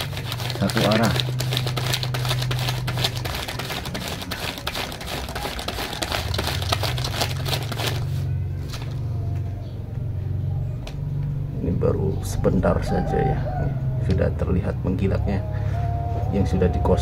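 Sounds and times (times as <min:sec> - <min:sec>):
dry leaf crinkling and scratching: 0:00.0 - 0:09.0.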